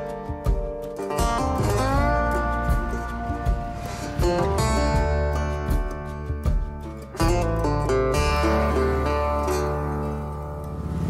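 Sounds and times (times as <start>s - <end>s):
low bass line: 0.0s - 11.0s
plucked acoustic guitar: 0.0s - 11.0s.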